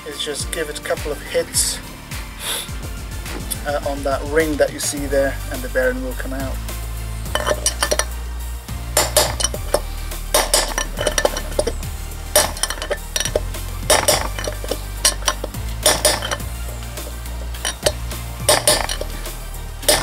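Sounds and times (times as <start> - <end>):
background music: 0.0 - 20.0
hammer blows on metal bearing: 8.8 - 20.0.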